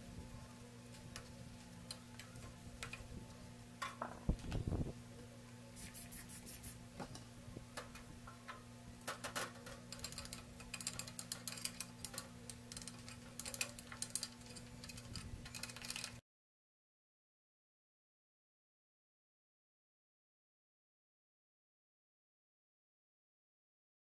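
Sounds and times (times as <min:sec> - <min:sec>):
steady low hum: 0:00.0 - 0:16.2.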